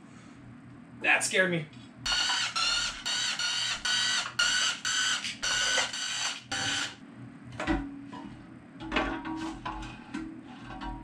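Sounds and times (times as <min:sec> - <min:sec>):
power tool whining: 0:02.1 - 0:07.0.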